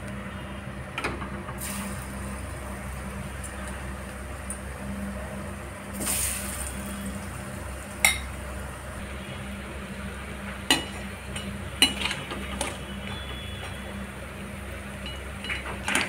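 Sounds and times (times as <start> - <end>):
frying hiss: 1.6 - 8.9
chillies sizzling in oil: 1.6 - 9.0.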